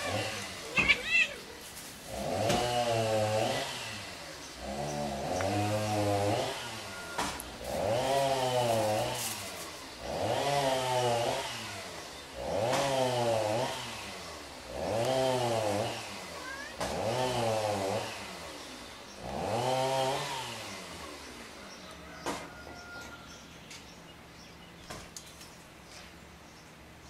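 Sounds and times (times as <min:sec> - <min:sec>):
cat yowling: 0:00.0 - 0:01.6, 0:16.4 - 0:16.8.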